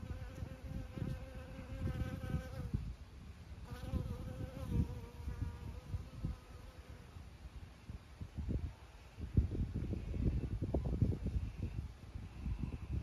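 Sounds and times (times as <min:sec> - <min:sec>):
flying insect buzzing: 0:00.0 - 0:02.9, 0:03.6 - 0:07.1.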